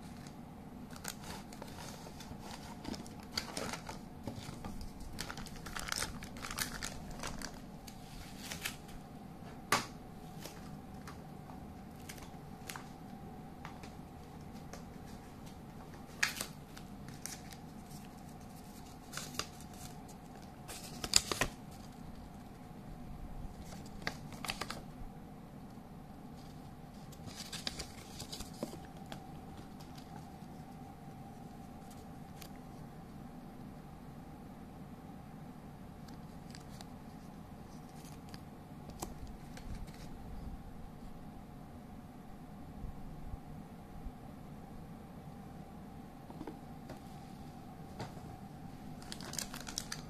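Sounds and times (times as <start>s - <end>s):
packaging and paper rustling: 0.0s - 9.0s, 13.7s - 22.6s, 23.5s - 24.8s, 26.3s - 32.6s, 39.0s - 40.1s, 48.9s - 50.0s
faint steady hum: 0.0s - 50.0s
plastic bag crinkling: 0.9s - 8.9s, 48.9s - 50.0s.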